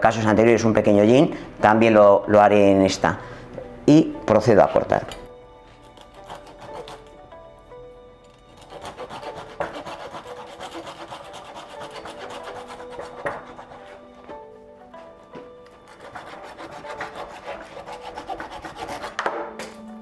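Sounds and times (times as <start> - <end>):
background music: 0.0 - 20.0
hand saw rasping through branch: 5.9 - 7.1, 8.6 - 14.0, 15.9 - 19.3.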